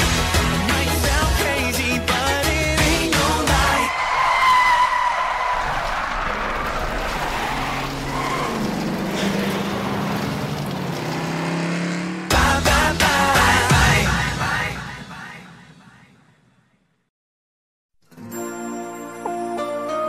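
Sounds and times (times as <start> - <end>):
pop music: 0.0 - 3.9, 12.3 - 15.7
tyre squeal: 3.9 - 9.8
car engine revving: 6.3 - 13.7.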